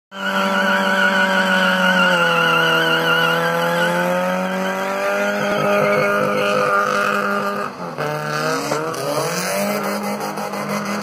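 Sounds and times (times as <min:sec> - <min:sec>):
car engine at high revs: 0:00.1 - 0:11.0
tyres squealing: 0:00.2 - 0:07.6.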